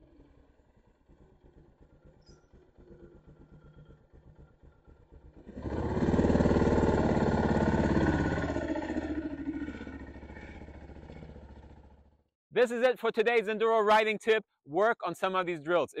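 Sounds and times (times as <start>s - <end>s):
dirt bike engine passing: 0.0s - 12.2s.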